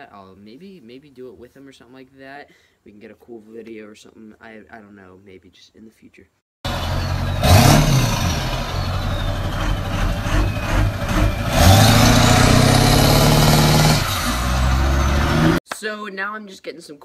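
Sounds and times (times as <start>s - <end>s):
diesel pickup engine revving hard: 6.7s - 15.6s.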